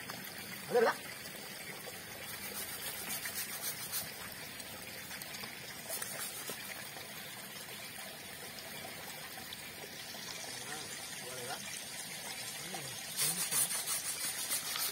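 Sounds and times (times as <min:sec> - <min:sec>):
water trickling: 0:00.0 - 0:14.9
scraping strokes on elephant's foot: 0:02.3 - 0:04.2, 0:05.9 - 0:06.6, 0:13.2 - 0:14.9.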